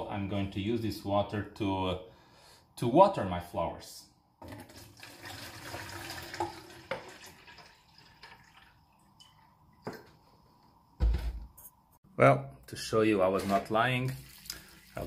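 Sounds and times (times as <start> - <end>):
water pouring into watering can: 4.4 - 9.6, 13.9 - 15.0
water dripping: 4.4 - 10.2, 14.0 - 15.0.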